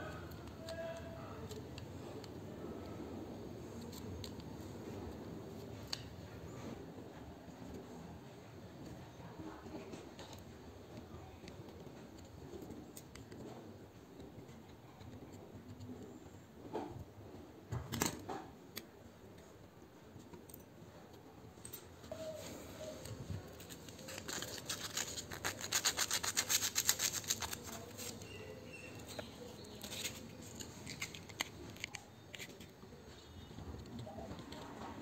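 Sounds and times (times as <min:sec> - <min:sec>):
sandpaper scraping metal: 0:24.1 - 0:28.2.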